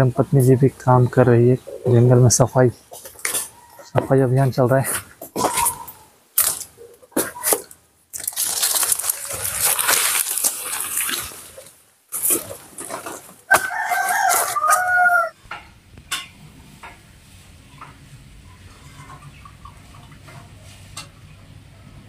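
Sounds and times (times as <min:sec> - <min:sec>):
leaves and brush crunching: 0:03.0 - 0:15.2
rooster crowing: 0:13.5 - 0:15.4.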